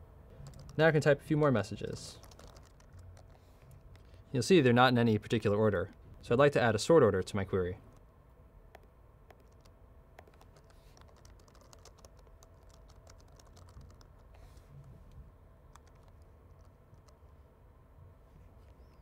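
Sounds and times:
computer keyboard typing: 0.4s - 0.8s, 2.1s - 4.1s, 8.7s - 14.4s, 15.7s - 17.3s.

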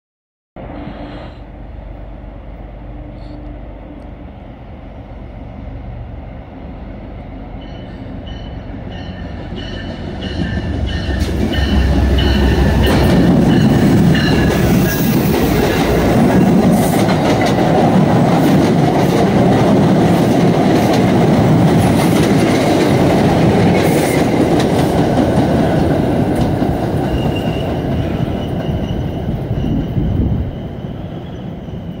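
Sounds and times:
diesel train engine rumble: 0.6s - 32.0s
train bell ringing: 7.5s - 15.2s, 27.0s - 32.0s.

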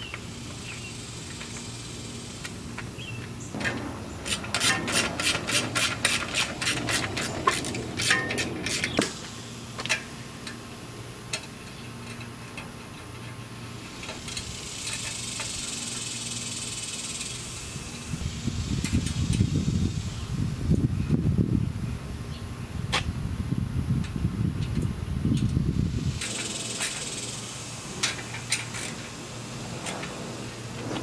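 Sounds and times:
steady high hiss: 0.0s - 11.7s, 13.5s - 20.8s, 25.7s - 31.0s.

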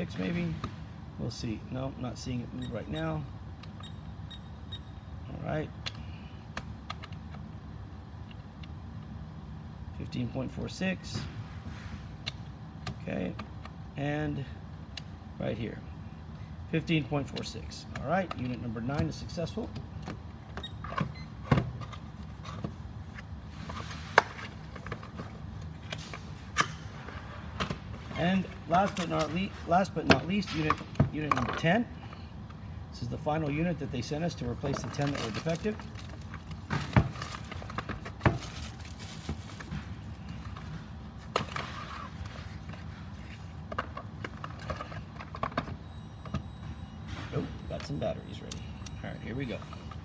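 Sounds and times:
packaging rustling: 34.9s - 40.6s.

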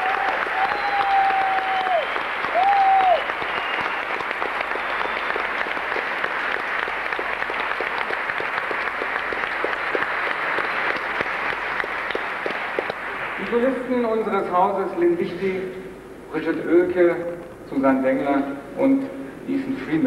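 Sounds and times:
audience applauding: 0.0s - 14.0s
held whistles from crowd: 0.6s - 4.1s, 4.7s - 5.4s.

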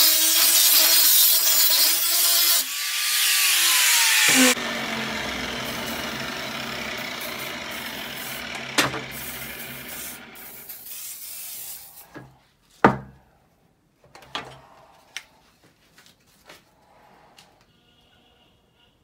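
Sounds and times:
aerosol can spraying: 8.0s - 12.1s.

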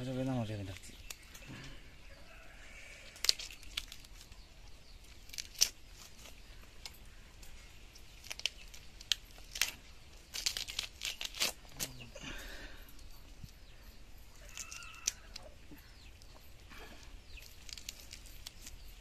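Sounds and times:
fish skin crackling and tearing: 3.0s - 7.5s, 8.1s - 12.0s, 14.4s - 15.5s, 17.4s - 19.0s.

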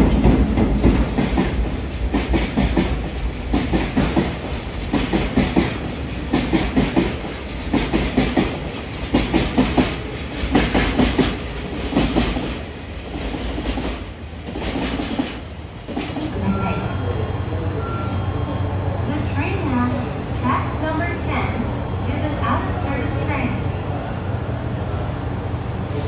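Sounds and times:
train wheels clattering on rail joints: 0.0s - 16.4s
train rumble: 0.0s - 26.0s.

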